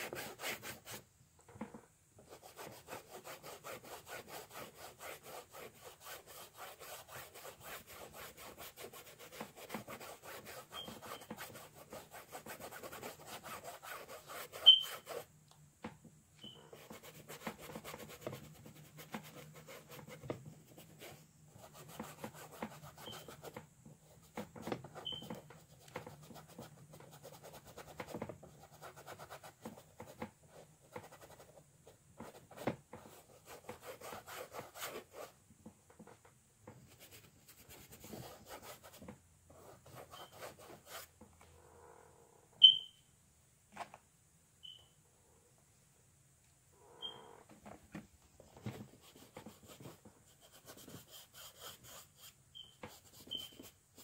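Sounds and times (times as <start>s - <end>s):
paintbrush scrubbing on canvas: 2.2s - 15.3s.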